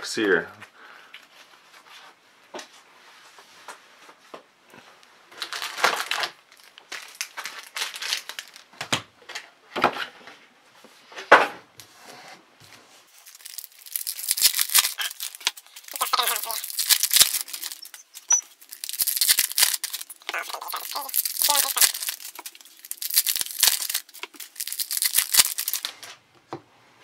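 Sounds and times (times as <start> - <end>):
foil packs crinkling: 5.3 - 9.5, 13.1 - 26.1
foil wrapper tearing: 5.4 - 8.7, 13.2 - 26.1.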